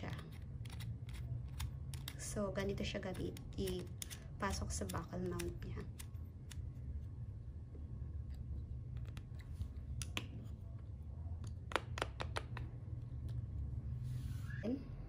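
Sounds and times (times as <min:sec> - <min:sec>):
plastic clicks and taps: 0:08.9 - 0:10.4, 0:11.4 - 0:13.4.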